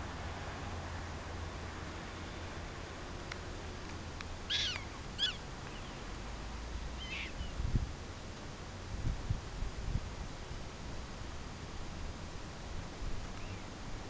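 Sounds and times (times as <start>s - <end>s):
high chirping calls: 4.5s - 6.1s, 7.0s - 7.6s.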